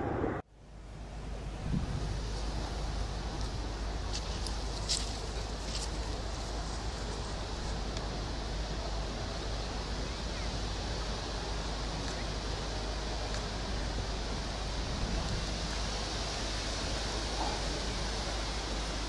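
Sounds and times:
low rumble: 0.0 - 5.6
wind buffeting microphone: 1.1 - 19.0.

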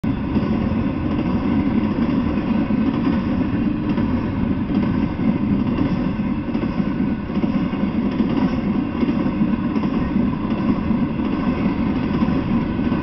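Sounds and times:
train wheels on rails: 0.0 - 13.0.

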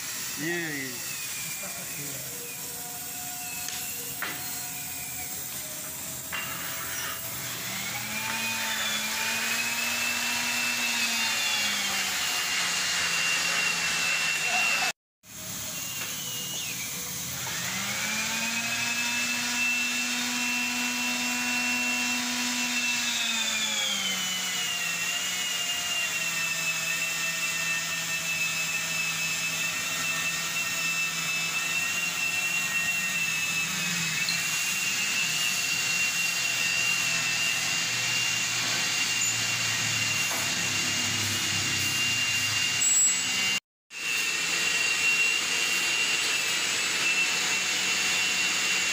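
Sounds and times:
cutting torch hissing: 0.0 - 7.8
whining tone: 0.0 - 12.3, 27.0 - 43.6.

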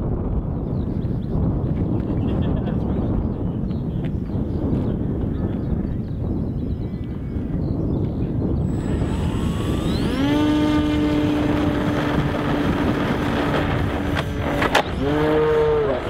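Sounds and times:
wind rumble on microphone: 0.0 - 16.0
model plane engine buzzing: 8.4 - 16.0.

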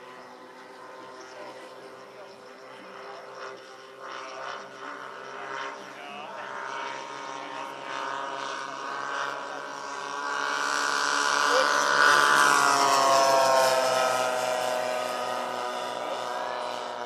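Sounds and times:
model airplane propellers droning: 0.0 - 17.0.

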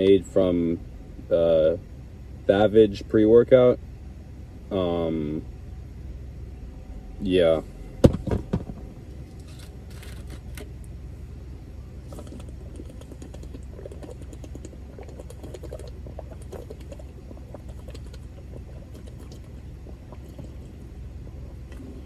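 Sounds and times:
low hum inside a car: 0.0 - 22.0
person gulping a drink: 12.1 - 22.0.

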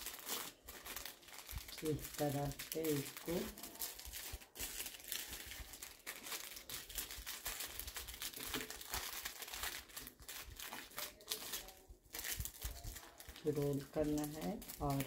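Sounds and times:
cellophane crinkling: 0.0 - 15.0.

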